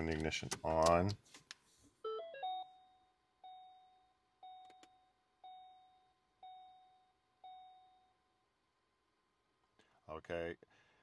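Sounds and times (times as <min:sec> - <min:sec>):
dashboard warning chime: 0:02.1 - 0:08.2.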